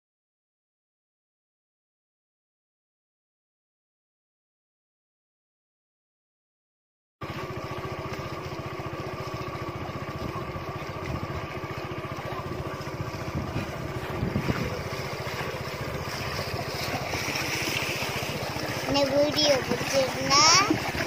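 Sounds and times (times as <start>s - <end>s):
feet splashing through shallow water: 7.2s - 21.0s
motor-like drone: 7.2s - 21.0s.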